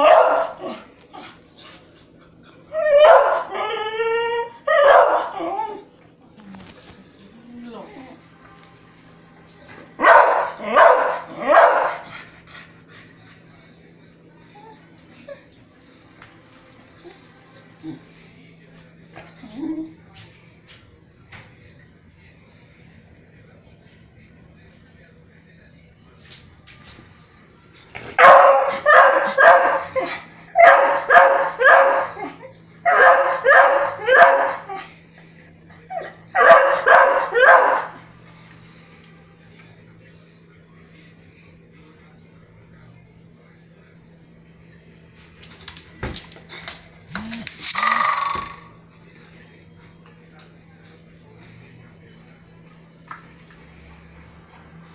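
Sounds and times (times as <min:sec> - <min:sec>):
dog barking: 0:00.0 - 0:00.8, 0:03.0 - 0:03.5, 0:04.7 - 0:05.4, 0:10.0 - 0:12.0, 0:28.2 - 0:34.8, 0:36.3 - 0:38.0.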